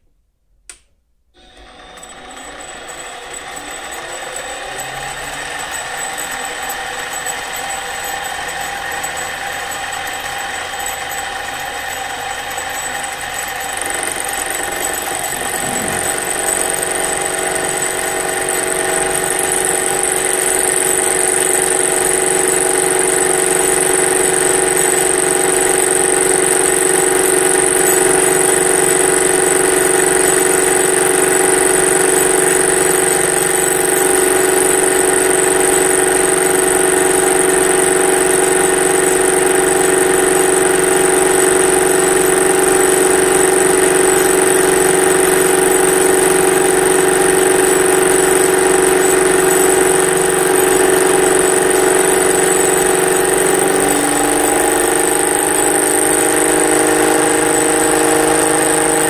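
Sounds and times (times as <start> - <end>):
metal lathe motor whine: 1.4 - 59.0
thin high-pitched tone: 15.2 - 16.5.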